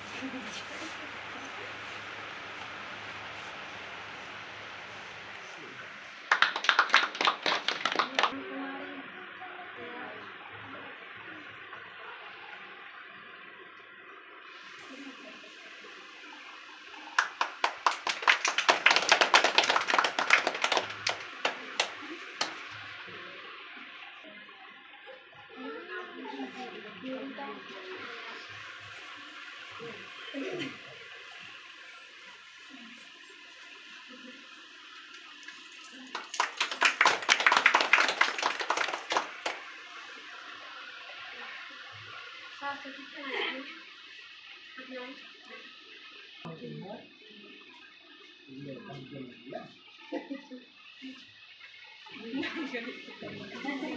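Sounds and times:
small group clapping: 5.4s - 8.4s, 16.9s - 23.2s, 35.1s - 41.2s.

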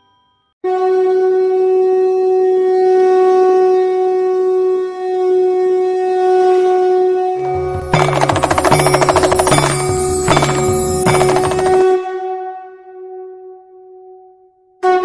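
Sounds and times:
conch shell blown: 0.6s - 8.0s, 14.8s - 15.0s.

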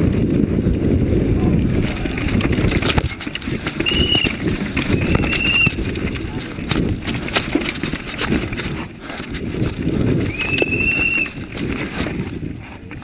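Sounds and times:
mountain bike rattling over trail: 0.0s - 13.0s
high whistling tone: 3.8s - 4.3s, 5.0s - 5.8s, 10.3s - 11.4s.

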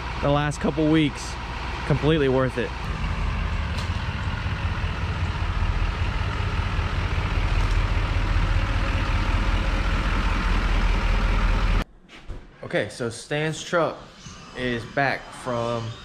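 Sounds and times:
diesel truck engine and road rumble: 0.0s - 11.8s.

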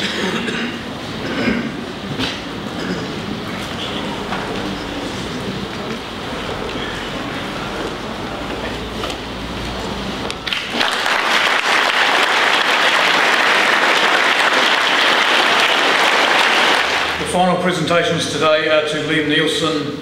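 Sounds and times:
large audience applauding: 10.4s - 17.2s.

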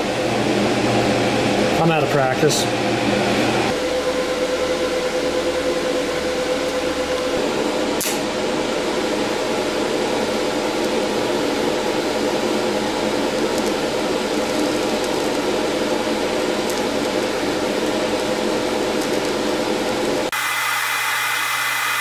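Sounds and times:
welding arc hissing: 9.1s - 22.0s.

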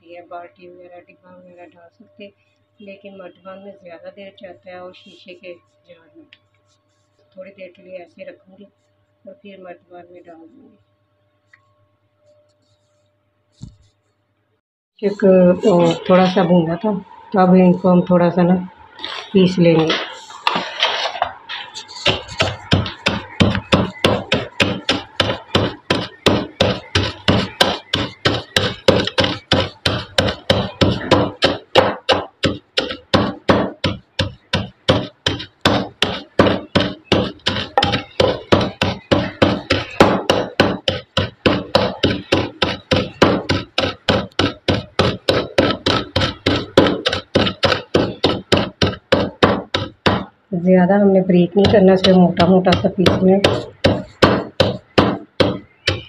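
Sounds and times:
pestle pounding seeds in a mortar: 19.8s - 50.4s, 51.4s - 56.0s.

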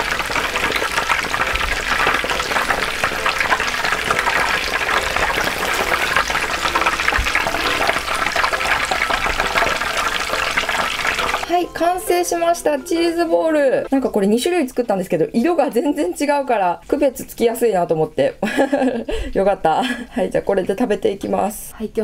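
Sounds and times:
oil sizzling and crackling: 0.0s - 16.2s.

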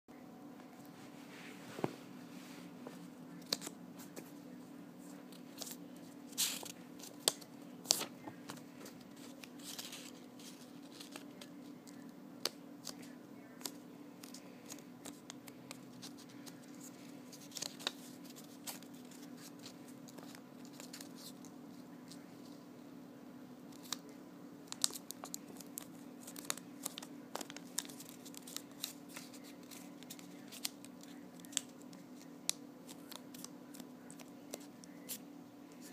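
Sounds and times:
steady low hum: 0.1s - 35.9s
paper folding crackles and rustles: 5.0s - 22.6s, 24.7s - 35.9s.

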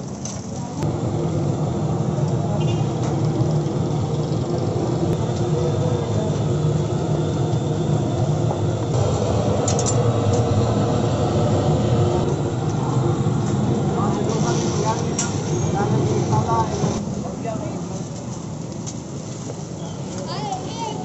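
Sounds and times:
loud mechanical roar: 0.8s - 17.0s.

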